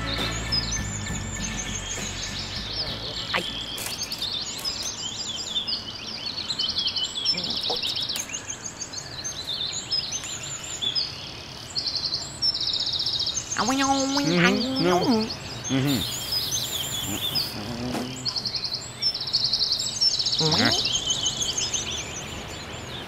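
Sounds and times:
music: 0.0 - 4.2
songbirds singing and chirping: 0.0 - 23.0.

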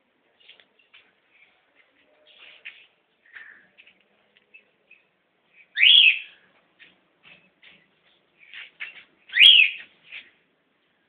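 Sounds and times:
parrot squawking: 5.7 - 6.3, 9.3 - 9.8.

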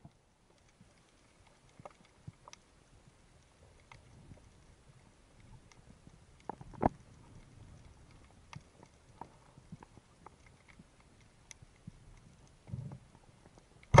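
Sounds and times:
faint underwater clicks and knocks: 0.0 - 14.0.

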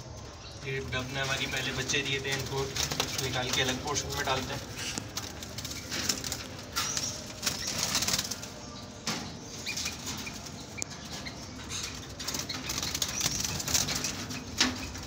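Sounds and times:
doves flapping wings: 0.7 - 8.6, 11.9 - 15.0.

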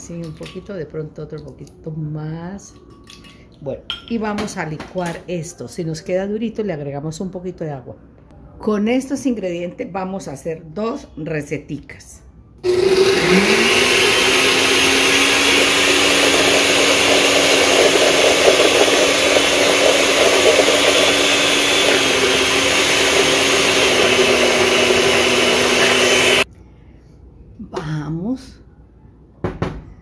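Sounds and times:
blender motor whine: 12.6 - 26.5.

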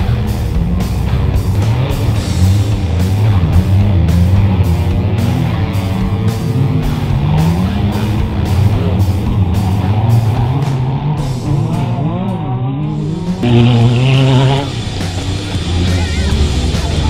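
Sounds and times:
racing car engines revving: 0.0 - 17.0
rock music with guitar: 0.0 - 17.0.

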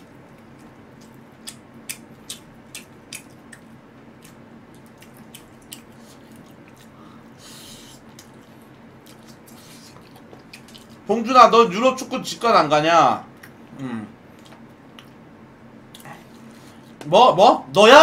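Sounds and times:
person chewing: 0.0 - 11.0, 14.3 - 15.2, 15.9 - 17.0
faint steady hum: 0.0 - 18.0.

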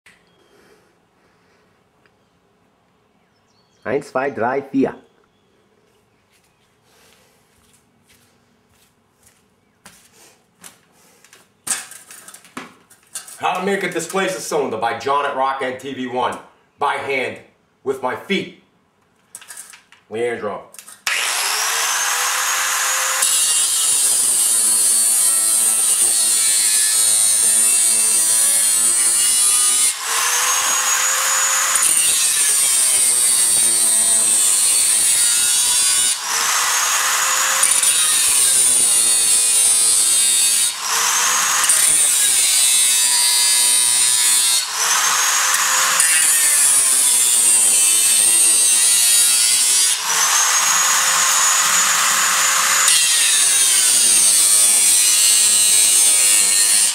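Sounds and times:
power tool whining cutting metal: 20.9 - 56.9.

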